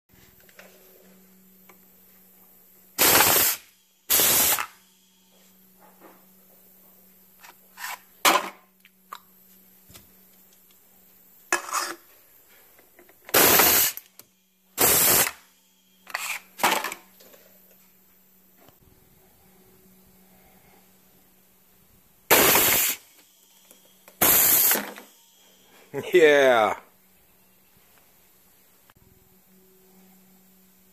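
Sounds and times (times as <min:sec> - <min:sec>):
compressed air blasts: 0:03.0 - 0:04.8, 0:13.3 - 0:14.0, 0:14.8 - 0:15.4, 0:22.3 - 0:23.1, 0:24.2 - 0:25.1.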